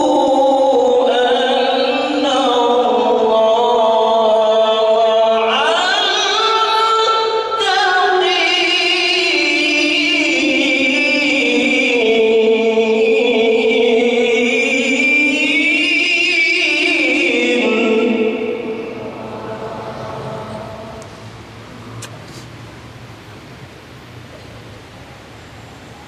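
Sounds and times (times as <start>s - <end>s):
man singing devotional melody: 0.0s - 21.0s.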